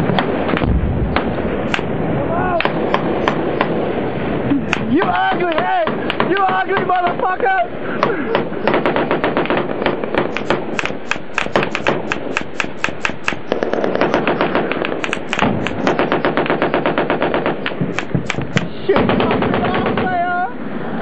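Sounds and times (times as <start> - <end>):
automatic gunfire: 8.4 - 20.1.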